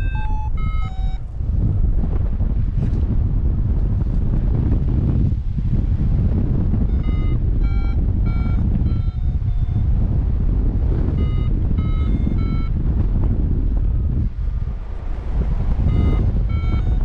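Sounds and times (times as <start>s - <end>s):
variometer beeping: 0.0s - 1.3s, 6.5s - 13.2s, 15.8s - 17.0s
wind rush on microphone: 0.0s - 17.0s.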